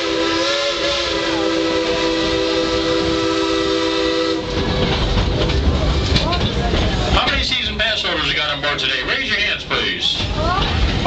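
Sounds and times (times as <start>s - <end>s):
steam locomotive whistle: 0.0s - 4.6s
rumble of moving train cars: 0.0s - 11.0s.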